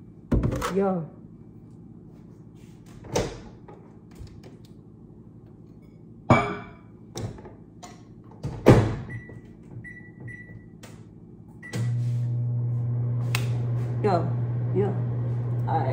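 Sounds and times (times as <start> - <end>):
microwave door knocks and thunks: 8.4 - 9.2.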